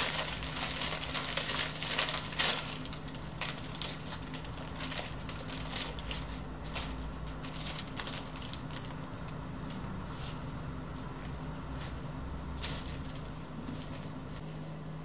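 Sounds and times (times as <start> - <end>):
tissue paper crinkling: 0.0 - 9.0.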